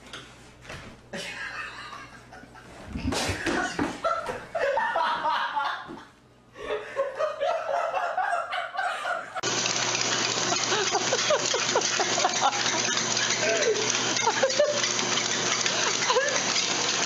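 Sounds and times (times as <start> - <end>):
person laughing: 1.2 - 9.4, 10.5 - 14.9, 15.7 - 16.6.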